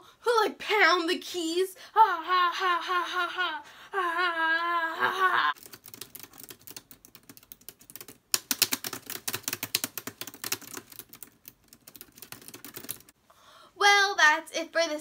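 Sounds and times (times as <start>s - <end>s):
woman's wavering vocal sound: 2.0s - 5.6s
laptop keyboard typing: 5.6s - 13.2s.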